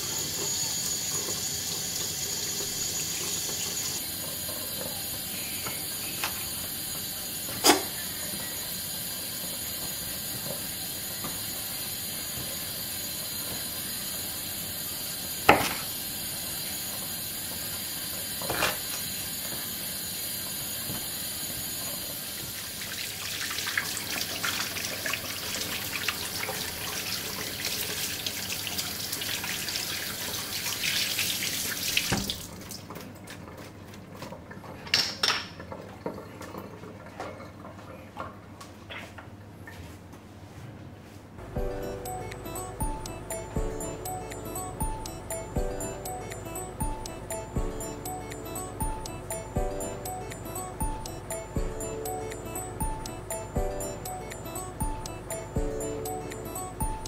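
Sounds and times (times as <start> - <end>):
water running from a tap: 0.0 - 32.9.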